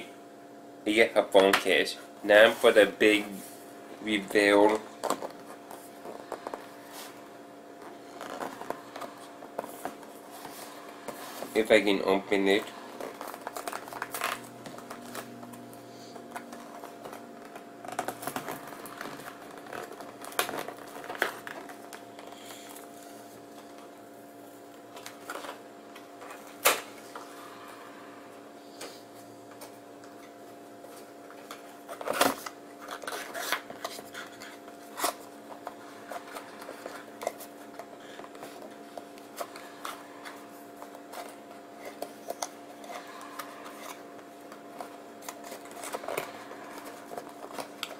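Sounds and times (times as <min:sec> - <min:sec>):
steady low hum: 0:00.0 - 0:47.9
packaging rustles and scrapes: 0:07.8 - 0:23.8, 0:30.9 - 0:47.9.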